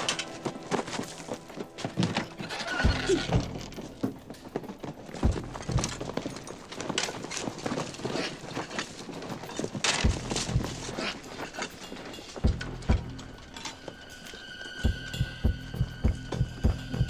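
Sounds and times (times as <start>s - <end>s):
quick footsteps: 0.0s - 14.0s
rifles and kit rattling: 0.0s - 14.3s
low thuds: 5.2s - 6.3s, 10.0s - 11.0s.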